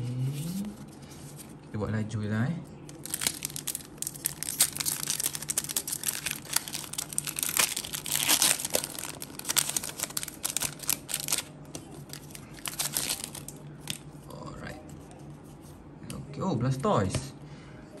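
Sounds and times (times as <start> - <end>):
foil wrapper crinkling and tearing: 2.9 - 14.0.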